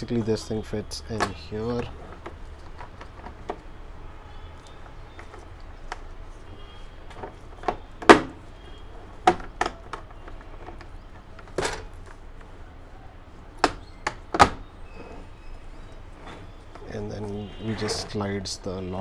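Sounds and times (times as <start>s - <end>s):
plastic case clacking: 9.2s - 12.2s.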